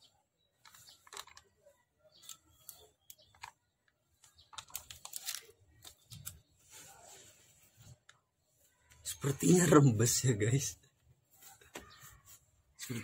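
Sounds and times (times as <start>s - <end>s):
fabric crinkling by hand: 0.6s - 9.1s.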